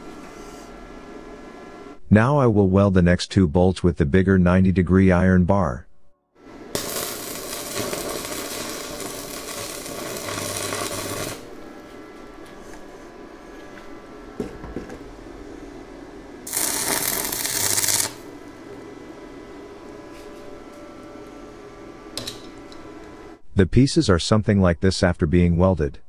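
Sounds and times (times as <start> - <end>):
electric arc welding crackling: 6.5 - 11.6, 16.4 - 22.7.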